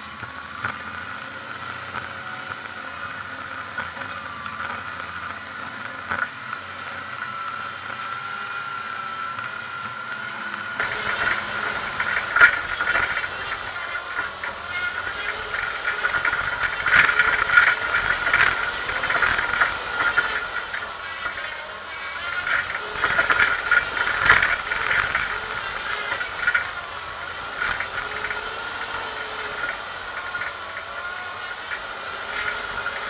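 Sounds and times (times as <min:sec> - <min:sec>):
high whine: 0:00.0 - 0:33.0
vehicle driving off-road: 0:00.0 - 0:33.0
rattling and knocks on rocky track: 0:10.8 - 0:33.0.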